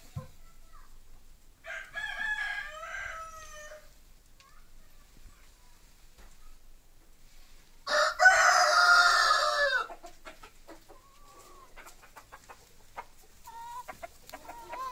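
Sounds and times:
rooster crowing: 0:01.6 - 0:03.9, 0:07.9 - 0:09.9
hens clucking: 0:08.4 - 0:14.9.

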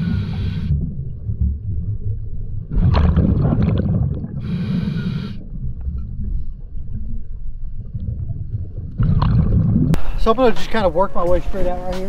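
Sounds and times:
regulator inhale hiss: 0:00.0 - 0:00.8, 0:04.4 - 0:05.4
exhaled bubbles bursting: 0:00.0 - 0:10.0
low underwater noise: 0:00.0 - 0:10.5.

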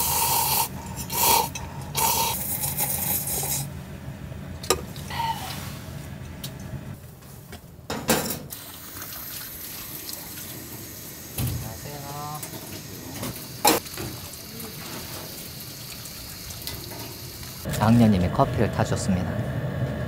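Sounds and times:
water running: 0:08.5 - 0:17.8.

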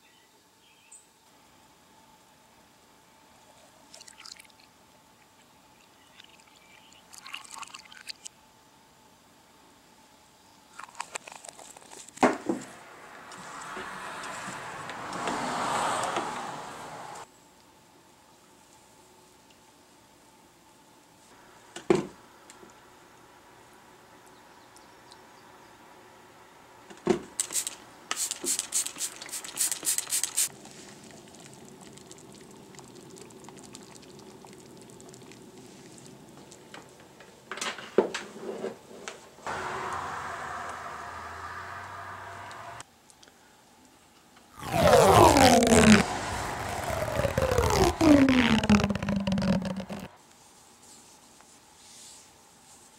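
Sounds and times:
water simmering: 0:03.8 - 0:04.6, 0:05.9 - 0:08.3, 0:30.5 - 0:36.7
liquid dripping into a bucket: 0:06.1 - 0:08.3, 0:30.9 - 0:36.7.

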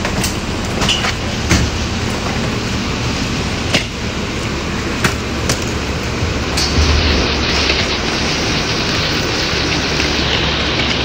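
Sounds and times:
bus engine idling: 0:00.0 - 0:11.0
sharp knocks: 0:05.0 - 0:08.6.

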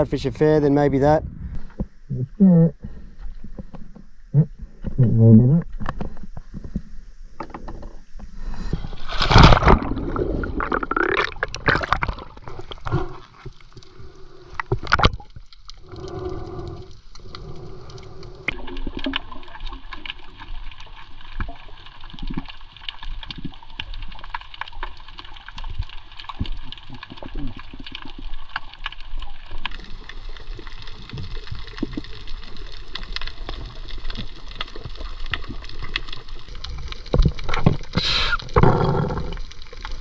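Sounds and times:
water splashing around a kayak: 0:08.3 - 0:40.0.

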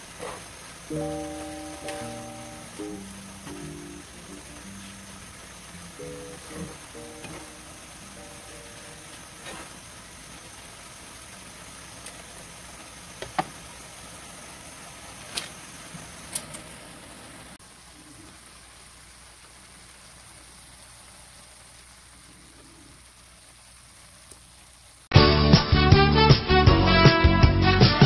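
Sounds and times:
noodles sizzling in a pan: 0:00.0 - 0:25.1.

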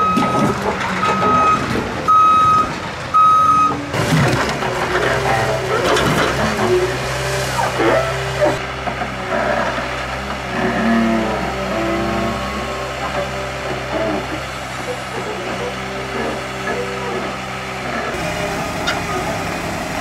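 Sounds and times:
diesel engine running: 0:00.0 - 0:20.0
hydraulic whine: 0:00.0 - 0:20.0.

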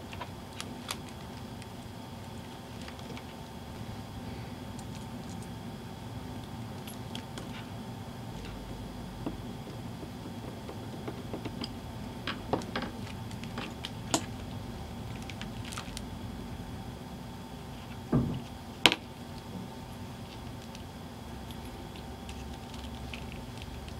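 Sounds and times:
steady hum: 0:00.0 - 0:23.9
dull thump: 0:18.1 - 0:18.4.

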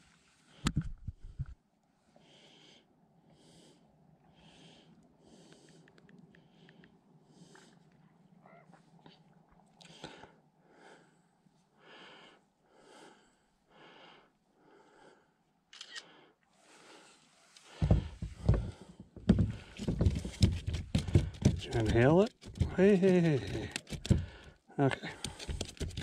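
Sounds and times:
smartphone camera shutter: 0:15.7 - 0:16.1
knocking and rubbing of landing net: 0:17.7 - 0:24.5, 0:25.2 - 0:26.0.

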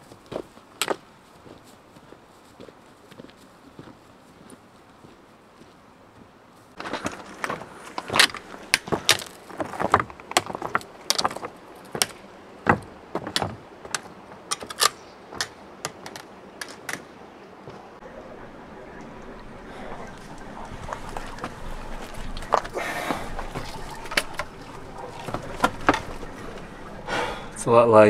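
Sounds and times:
poles and boots clacking on rocks: 0:06.8 - 0:17.8, 0:19.9 - 0:27.1.

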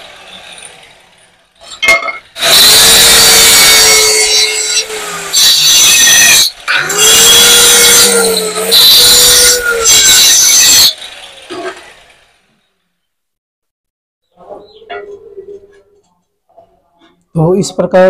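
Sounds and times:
electric cutter grinding tile: 0:00.0 - 0:12.6.

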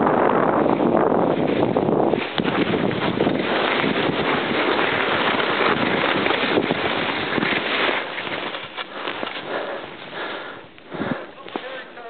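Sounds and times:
wind rushing over microphone: 0:00.0 - 0:08.7
skis hissing through powder snow: 0:01.3 - 0:12.0.

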